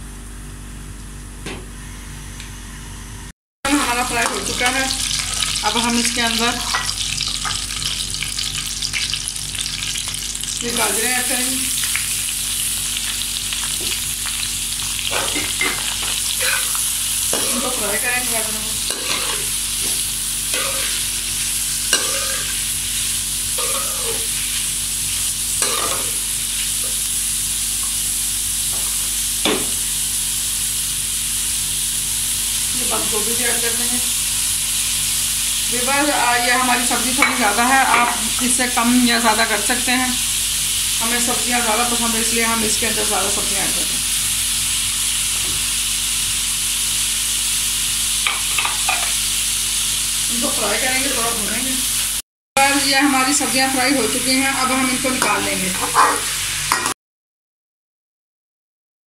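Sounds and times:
carrots sizzling in hot oil: 3.7s - 57.0s
metal spatula scraping a pan: 15.1s - 18.0s, 18.9s - 22.7s, 23.6s - 24.6s, 25.6s - 26.2s, 54.6s - 56.9s
metal spatula knocking on pan: 29.4s - 29.8s.

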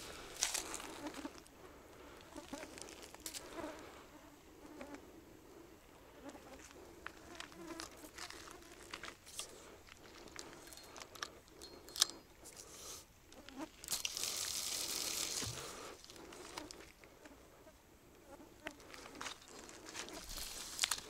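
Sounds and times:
flying insect buzzing: 0.7s - 1.5s, 2.2s - 5.1s, 6.0s - 9.0s.

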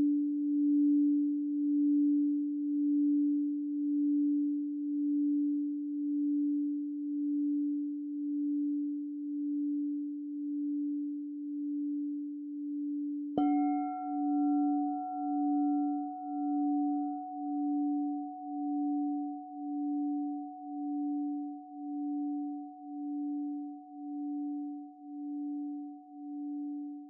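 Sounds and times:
singing bowl humming: 0.0s - 27.0s.

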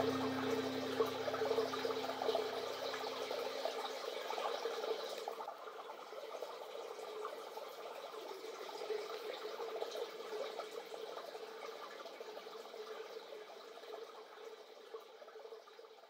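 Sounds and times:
steady mid-pitched hum: 0.0s - 2.8s.

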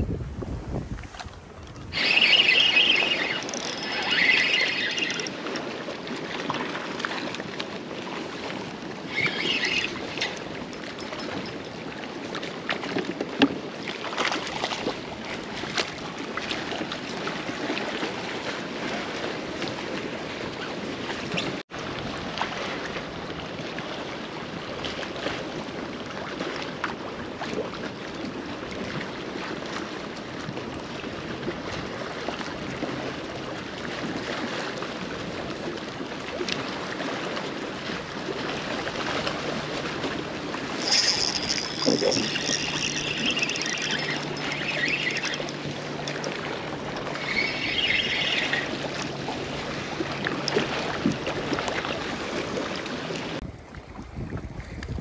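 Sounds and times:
wind on microphone: 0.0s - 6.4s, 38.1s - 52.0s, 53.4s - 55.0s
waves lapping against hull: 0.0s - 55.0s.

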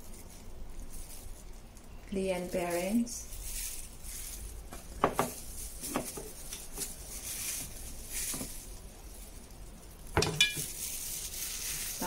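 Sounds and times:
kitchen items knocking on counter: 4.7s - 6.3s, 10.2s - 10.7s.

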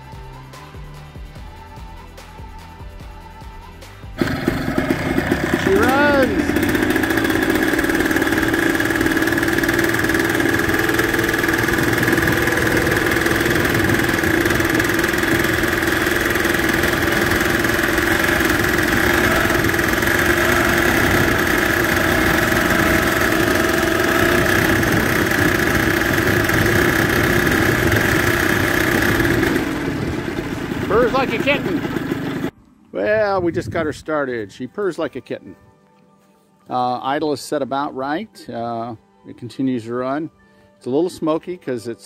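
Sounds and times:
two-stroke engine idling: 4.2s - 32.5s.

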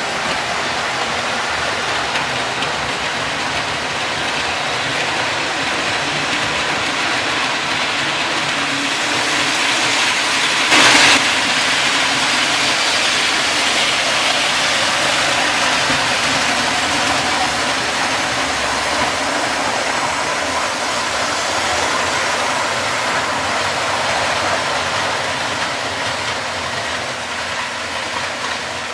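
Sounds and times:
model train running: 0.0s - 28.9s.

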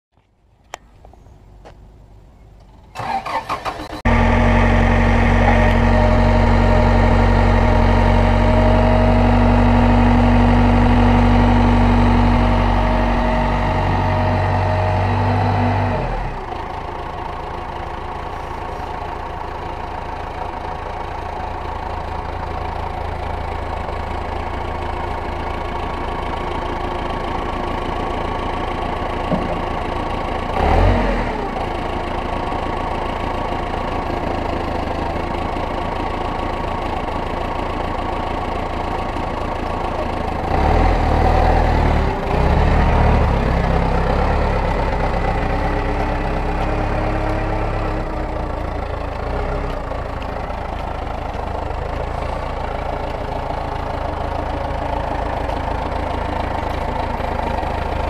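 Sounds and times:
forklift engine running: 2.5s - 58.0s
starter cranking engine: 2.9s - 4.5s
hydraulic whine: 3.0s - 9.1s.

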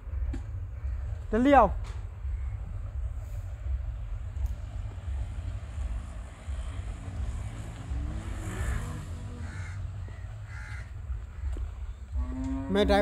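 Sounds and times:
low rumble: 0.0s - 13.0s
crow cawing: 8.3s - 12.4s.

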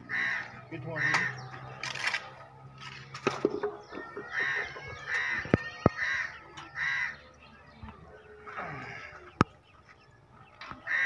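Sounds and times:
crow cawing: 0.0s - 1.6s, 4.1s - 7.3s.

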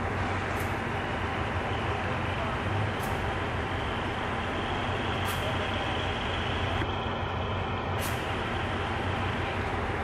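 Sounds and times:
locomotive engine rumble: 0.0s - 10.0s
air brake hisses: 8.0s - 8.4s.

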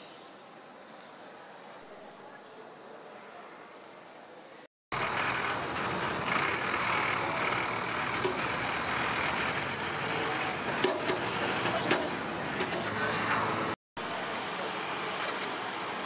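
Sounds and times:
city road traffic: 4.9s - 16.0s.

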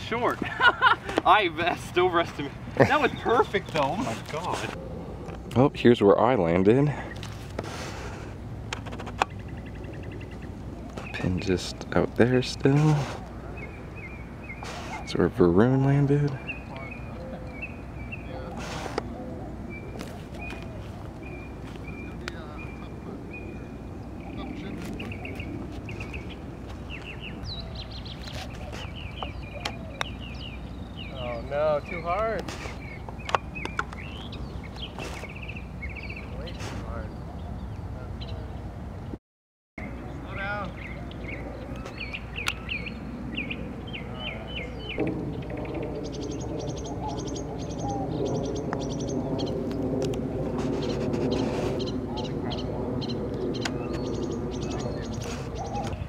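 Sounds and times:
small birds chirping: 0.0s - 4.8s, 9.1s - 39.2s, 39.8s - 49.8s, 50.6s - 56.0s.

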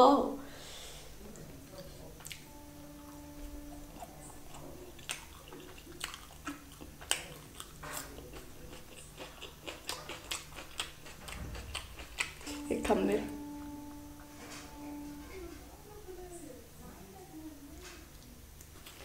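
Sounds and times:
close-up chewing: 4.0s - 12.8s, 18.2s - 19.0s.

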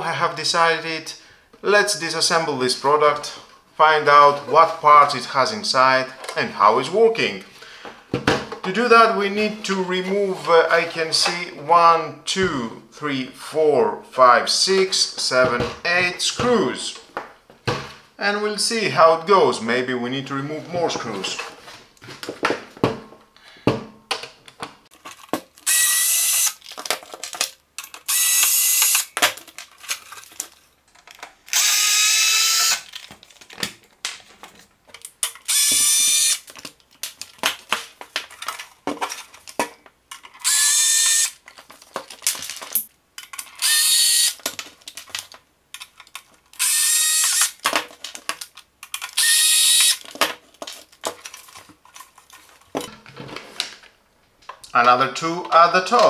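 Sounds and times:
power screwdriver whine: 25.6s - 26.6s, 28.0s - 29.1s, 31.5s - 32.9s, 35.5s - 36.4s, 40.4s - 41.4s, 43.6s - 44.4s, 46.6s - 47.6s, 49.2s - 50.0s.

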